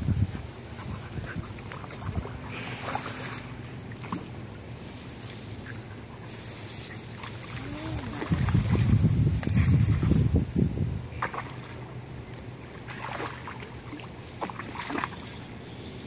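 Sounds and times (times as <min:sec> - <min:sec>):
small splashes: 0:00.8 - 0:05.8, 0:06.5 - 0:10.3, 0:11.1 - 0:15.8
fish splashing and thrashing in water: 0:01.1 - 0:05.4, 0:06.9 - 0:10.3, 0:11.1 - 0:12.0, 0:12.6 - 0:15.8.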